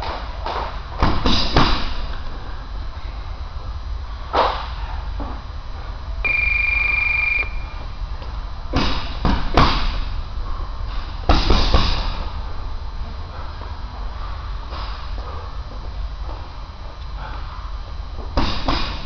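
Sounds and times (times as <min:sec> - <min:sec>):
electronic beep: 0:06.2 - 0:07.8
punches thudding on heavy bag: 0:08.7 - 0:10.0, 0:11.3 - 0:12.2, 0:18.4 - 0:19.0.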